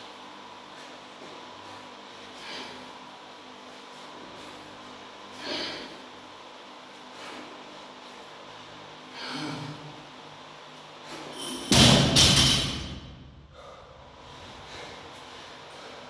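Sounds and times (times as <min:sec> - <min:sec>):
heavy exhaled breaths: 0:00.6 - 0:03.1, 0:03.7 - 0:06.2, 0:07.0 - 0:10.1, 0:13.4 - 0:16.0.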